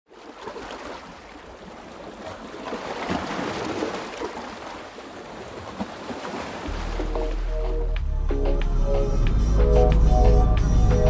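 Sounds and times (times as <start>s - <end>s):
small waves on a beach: 0.1s - 7.6s
small water splashes: 0.1s - 7.9s.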